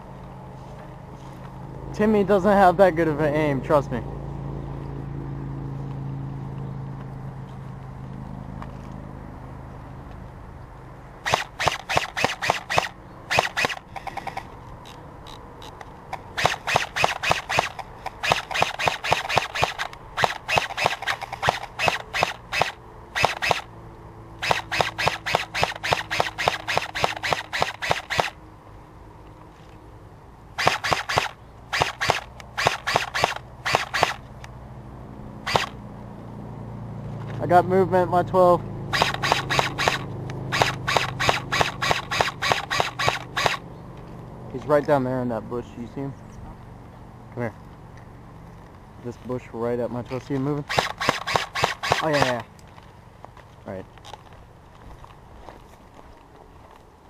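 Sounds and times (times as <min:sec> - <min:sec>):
airsoft rifle rapid shots: 0:11.2 - 0:14.5, 0:16.1 - 0:23.7, 0:24.4 - 0:28.4, 0:30.6 - 0:34.2, 0:35.5 - 0:35.8, 0:38.9 - 0:43.6, 0:50.6 - 0:52.4.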